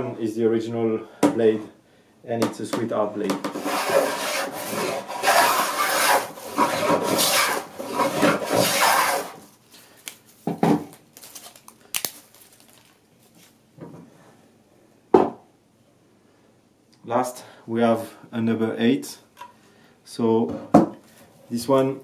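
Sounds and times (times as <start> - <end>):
hand plane rasping strokes: 3.5 - 9.4.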